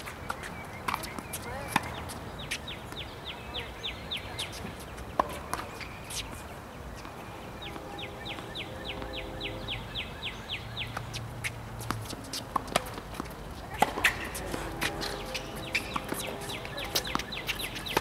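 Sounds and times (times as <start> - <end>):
bird singing down-slurred notes: 5.7 - 11.1, 15.0 - 18.0.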